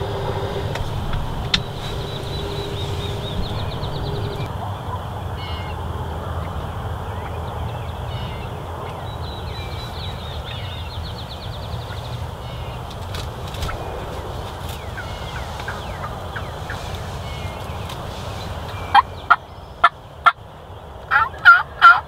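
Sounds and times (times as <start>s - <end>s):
bird trills: 0.0s - 5.8s, 7.1s - 20.0s
steady low rumble: 0.0s - 21.0s.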